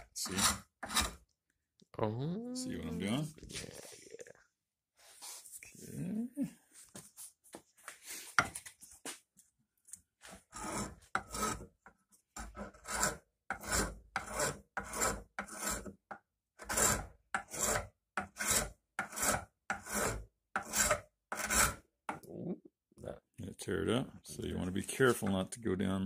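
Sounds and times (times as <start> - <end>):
wood rasp filing: 0.0 - 1.2, 10.2 - 11.7, 12.4 - 16.0, 16.6 - 21.8.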